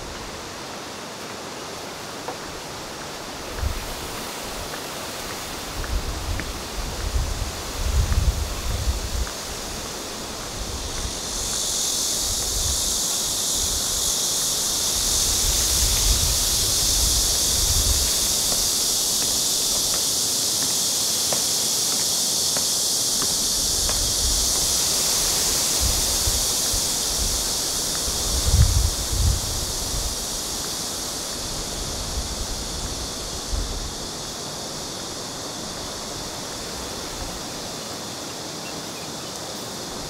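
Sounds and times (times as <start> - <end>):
insect chorus shrill hiss: 0.0 - 40.0.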